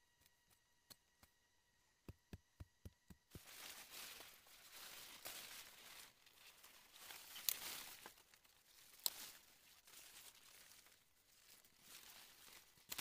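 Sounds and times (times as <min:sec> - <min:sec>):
grass and leaves rustling: 0:03.3 - 0:13.0.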